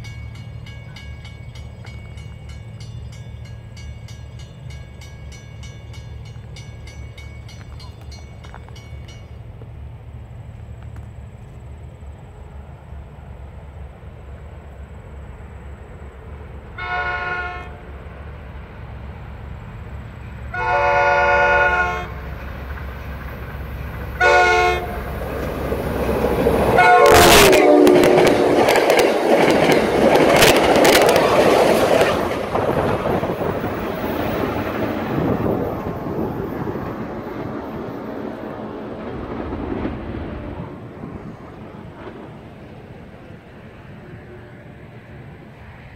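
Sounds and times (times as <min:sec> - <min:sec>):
train passing with rushing air: 0:00.0 - 0:45.9
train horn: 0:16.7 - 0:18.0, 0:20.5 - 0:22.3, 0:24.2 - 0:25.1, 0:26.7 - 0:29.0, 0:43.9 - 0:45.0
wheels clattering over rail joints: 0:25.0 - 0:40.4.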